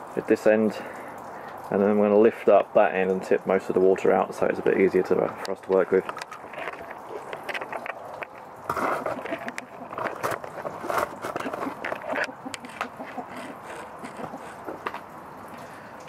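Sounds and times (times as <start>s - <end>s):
knocks and clicks of handling: 5.3s - 15.1s
rustling: 5.7s - 15.8s.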